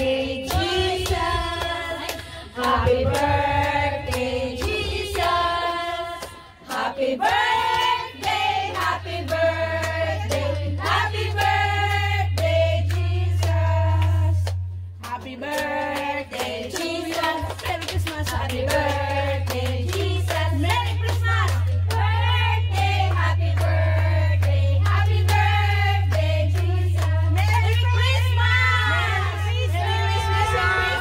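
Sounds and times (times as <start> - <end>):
low drone: 0.0 - 6.7
group of people singing: 0.0 - 31.0.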